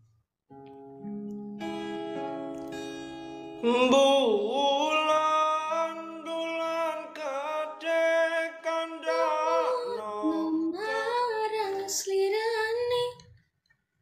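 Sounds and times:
woman singing high notes: 9.6 - 13.2.

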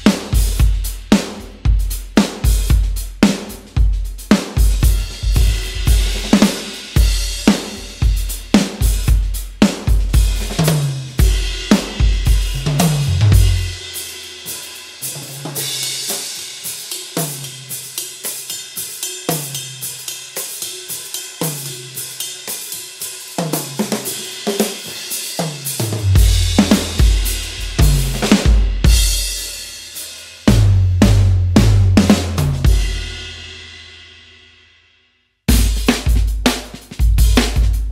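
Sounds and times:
drum kit groove: 0.0 - 34.3, 35.5 - 37.9
snare and tom strokes: 2.2 - 17.5, 23.4 - 29.5, 35.5 - 37.9
heavy bass drum hits: 4.8 - 6.4, 11.2 - 13.8, 26.0 - 29.3, 30.5 - 33.1, 35.5 - 36.6
hi-hat and cymbal ticks: 13.9 - 25.8.

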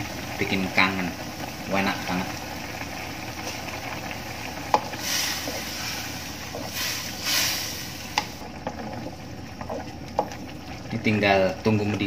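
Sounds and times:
gas burner hiss: 4.5 - 8.5.

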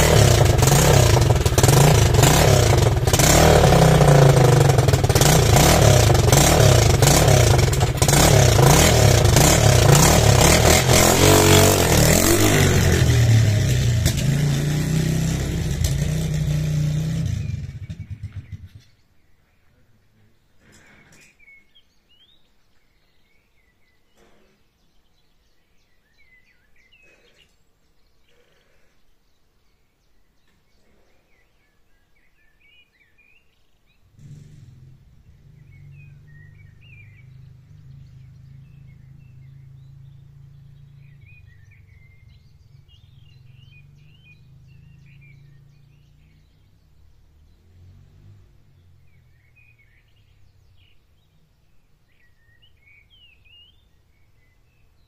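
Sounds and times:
distant motorbike engine drone: 0.0 - 19.0, 34.0 - 51.8
songbirds chirping: 0.0 - 55.0.

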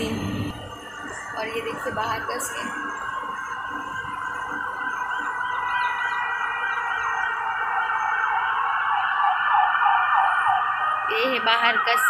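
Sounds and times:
high-pitched hum: 0.0 - 9.0
emergency siren wailing: 0.0 - 12.0.

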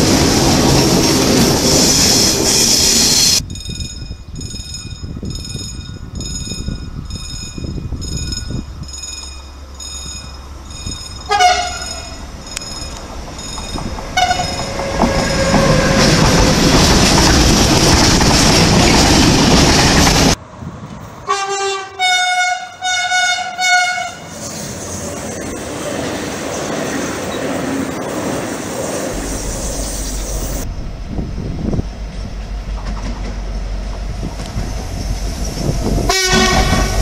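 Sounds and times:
train wheel and wagon noise: 0.0 - 37.0
ringing chime: 3.4 - 13.8
locomotive horn blasts: 11.3 - 12.2, 14.1 - 16.4, 21.3 - 24.3, 36.1 - 37.0.

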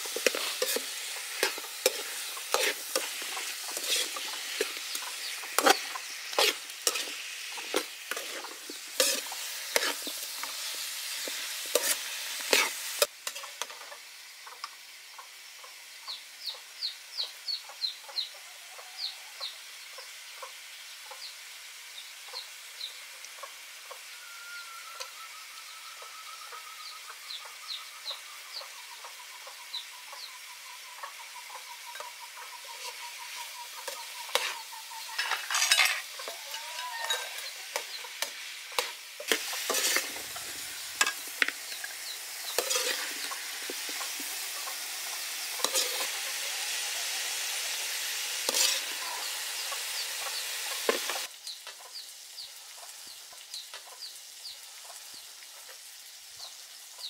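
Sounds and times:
high chirps: 0.0 - 13.1
food sizzling in a wok: 0.0 - 57.0.

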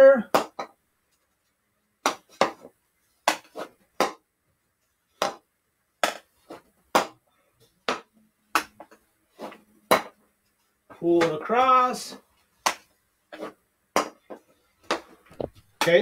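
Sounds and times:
hockey stick striking ball: 0.3 - 0.8, 2.0 - 4.2, 5.2 - 5.4, 6.0 - 7.2, 7.8 - 10.2, 12.6 - 16.0.

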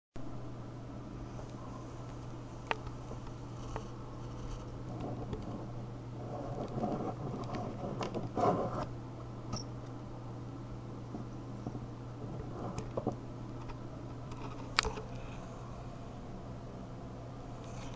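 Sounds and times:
steady low hum: 0.2 - 17.9
plastic case scraping on wood: 3.6 - 8.9, 12.2 - 13.2.

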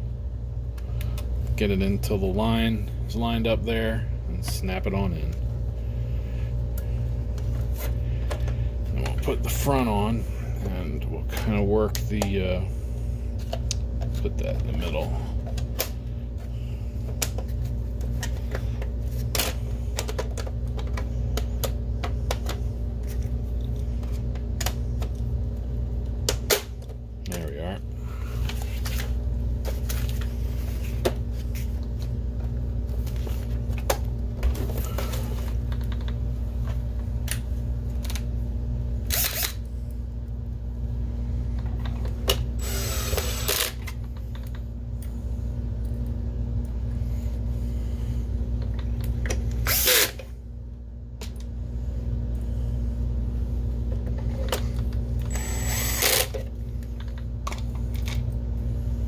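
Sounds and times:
steady low hum: 0.0 - 59.0
cordless drill driving screws: 42.6 - 43.8, 55.3 - 56.3.

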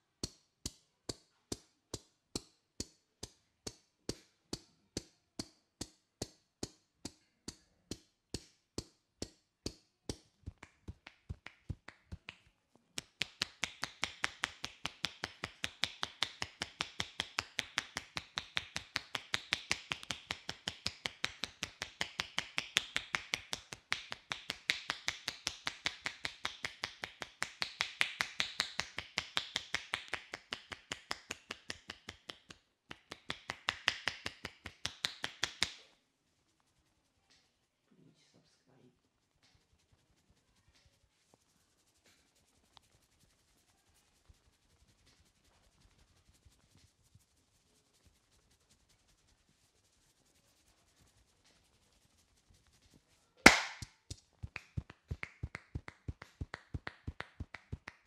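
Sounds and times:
hands slapping a head: 0.2 - 35.9, 52.9 - 58.0.

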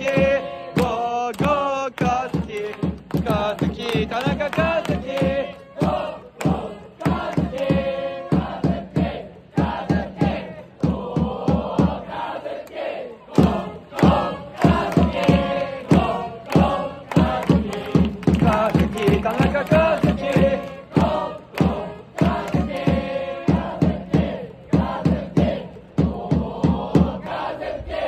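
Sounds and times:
sharp steady beat: 0.0 - 12.2, 13.3 - 27.2
crowd singing in unison: 0.0 - 28.0.

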